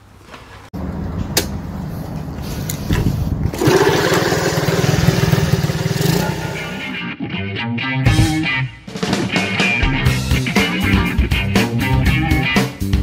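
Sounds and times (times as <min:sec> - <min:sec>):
motorcycle engine running: 0:03.5 - 0:07.0.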